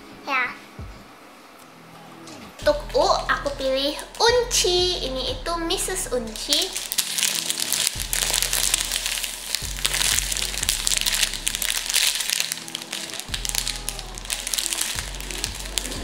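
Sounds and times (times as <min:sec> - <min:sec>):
background music: 0:00.0 - 0:16.0
plastic packaging crinkling: 0:03.4 - 0:04.6, 0:05.8 - 0:16.0.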